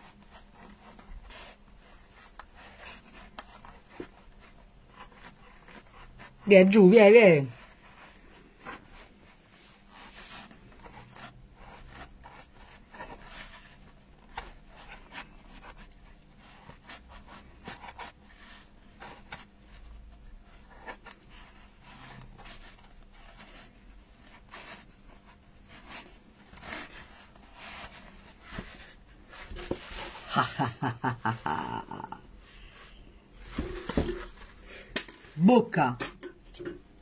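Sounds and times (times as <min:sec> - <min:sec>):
tool scraping foam: 0:07.6 - 0:30.9.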